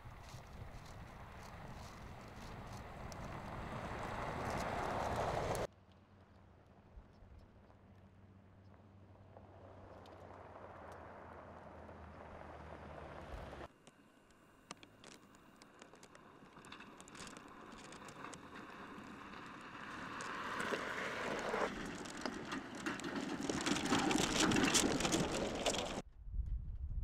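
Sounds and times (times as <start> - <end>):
tyres crunching over gravel: 0.0 - 5.7, 14.6 - 26.0
low rumble: 24.9 - 27.0.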